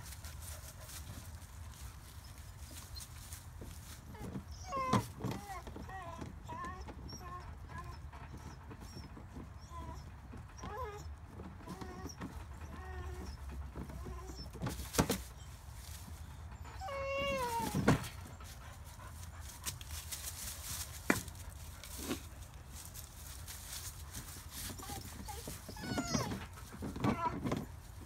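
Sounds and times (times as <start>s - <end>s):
dog whining: 4.1s - 15.5s, 16.5s - 18.5s, 24.6s - 27.7s
dogs scrabbling at plastic hose reel: 16.8s - 28.0s.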